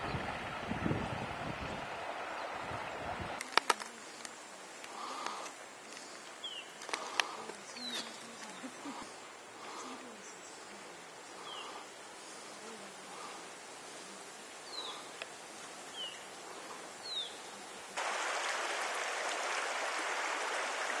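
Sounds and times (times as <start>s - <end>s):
rushing water hiss: 0.0s - 21.0s.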